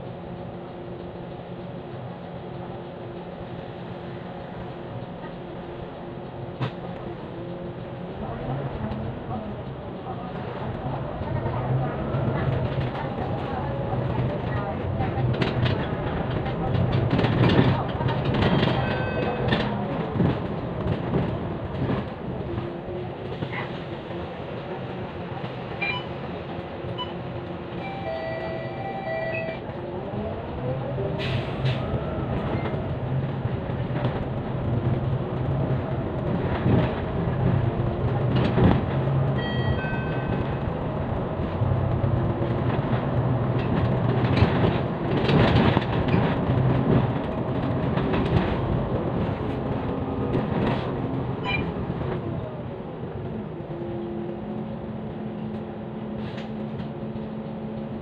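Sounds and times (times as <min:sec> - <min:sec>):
bus engine drone: 0:00.0 - 0:58.0
bus body rattling: 0:40.0 - 0:52.2.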